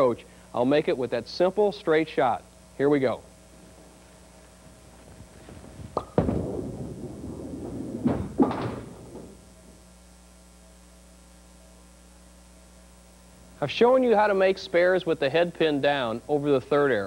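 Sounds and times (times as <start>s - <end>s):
bowling ball rolling rumble: 3.6s - 9.8s
bowling ball thudding on lane: 5.5s - 9.5s
ball hitting pin crack: 5.8s - 9.4s.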